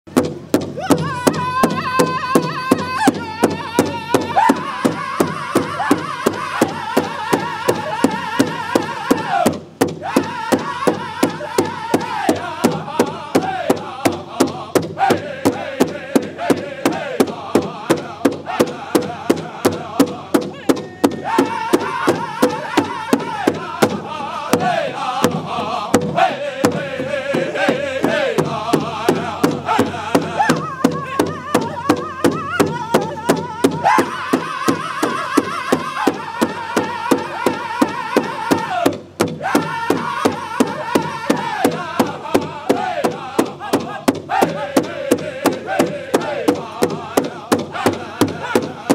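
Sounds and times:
large drum beating: 0:00.1 - 0:48.9
loud group singing: 0:00.8 - 0:48.9.

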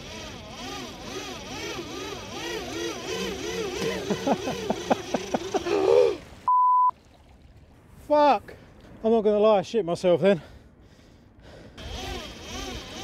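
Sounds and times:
steady bleep tone: 0:06.5 - 0:06.9.

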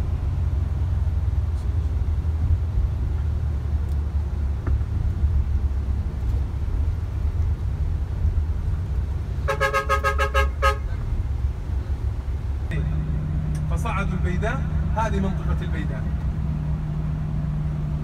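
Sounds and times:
bus driving rumble from inside: 0:00.0 - 0:18.0
vehicle horn short beeps: 0:09.5 - 0:10.9.

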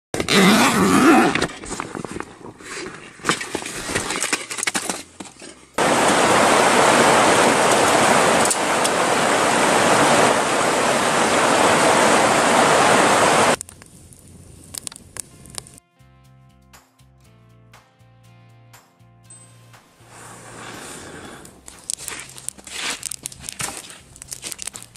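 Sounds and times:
creek rushing over rocks: 0:05.8 - 0:13.6.

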